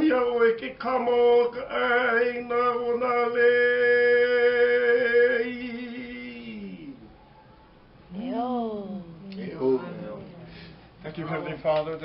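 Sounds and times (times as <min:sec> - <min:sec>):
man chanting: 0:00.0 - 0:07.1.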